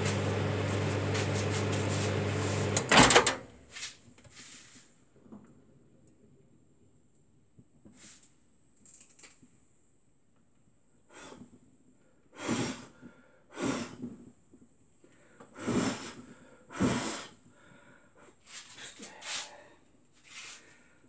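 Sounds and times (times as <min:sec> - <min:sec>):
microwave oven running: 0:00.0 - 0:03.6.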